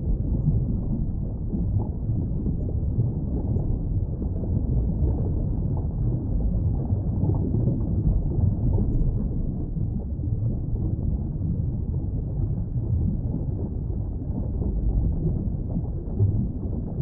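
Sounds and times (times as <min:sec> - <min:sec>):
steady low rumbling: 0:00.0 - 0:17.0.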